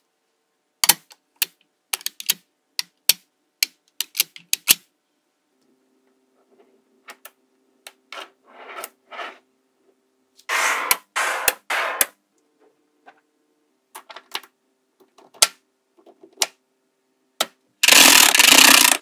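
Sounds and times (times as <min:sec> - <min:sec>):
magnetic balls clicking together: 0:00.8 - 0:04.8, 0:17.8 - 0:19.0
balls scraping on tabletop: 0:08.1 - 0:09.5, 0:10.4 - 0:12.1.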